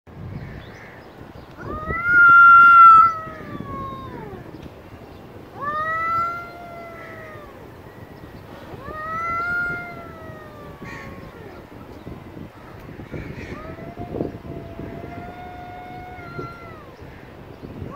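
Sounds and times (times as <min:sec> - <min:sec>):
cat yowling: 0:01.6 - 0:04.5, 0:05.5 - 0:07.7, 0:08.6 - 0:11.8, 0:13.3 - 0:17.0.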